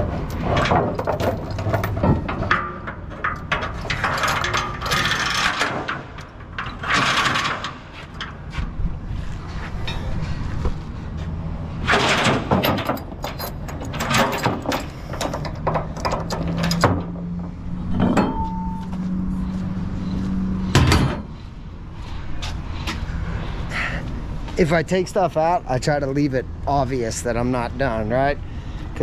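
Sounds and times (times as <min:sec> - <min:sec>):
gear knocking and rattling: 0:00.0 - 0:08.4.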